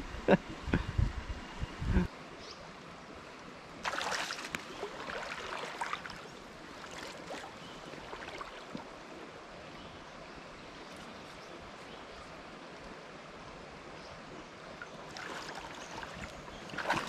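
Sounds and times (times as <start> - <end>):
stream flowing: 0.0 - 17.0
footsteps splashing through water: 3.8 - 7.5, 16.7 - 17.0.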